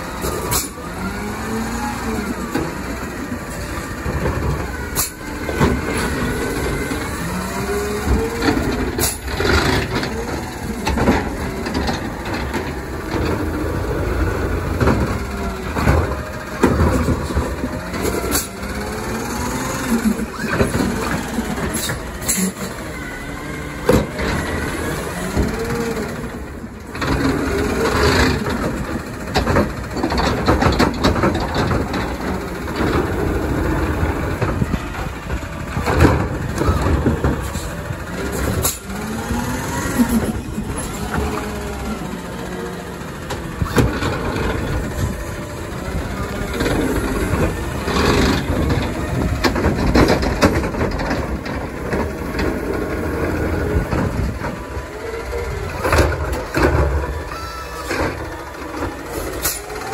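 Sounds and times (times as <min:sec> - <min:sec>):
hydraulic arm lifting: 0:00.0 - 0:59.9
truck engine revving: 0:00.0 - 0:59.9
sharp knocks of cart: 0:23.8 - 0:42.0, 0:43.1 - 0:55.0, 0:55.7 - 0:59.9.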